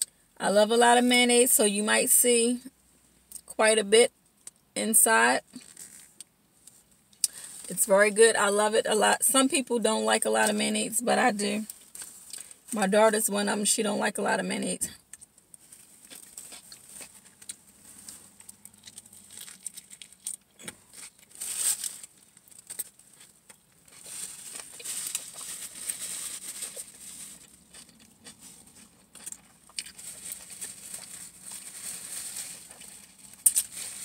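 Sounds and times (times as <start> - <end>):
chewing sandwich: 15.0 - 21.3, 22.0 - 31.3
paper wrapper crinkling: 15.5 - 34.0.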